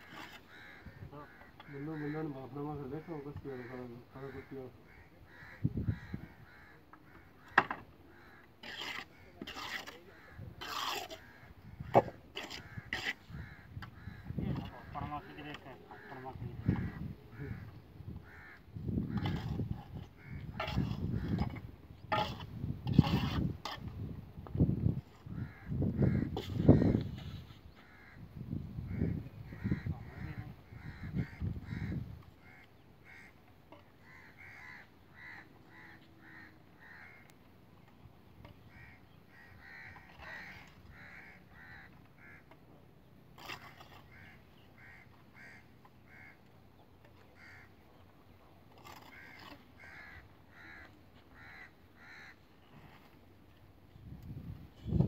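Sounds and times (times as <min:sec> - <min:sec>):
crows cawing: 0:00.0 - 0:09.3, 0:10.1 - 0:21.6, 0:25.3 - 0:27.1, 0:27.8 - 0:28.2, 0:28.9 - 0:37.4, 0:38.5 - 0:42.6, 0:43.4 - 0:46.5, 0:47.4 - 0:47.8, 0:48.8 - 0:53.0.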